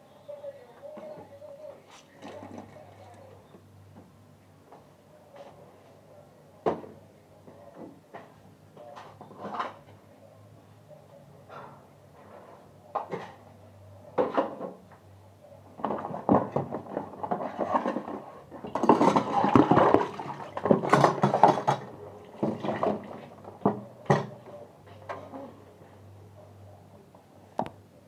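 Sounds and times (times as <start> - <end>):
dishes clattering: 15.8 - 24.4
water sloshing: 18.7 - 23.4.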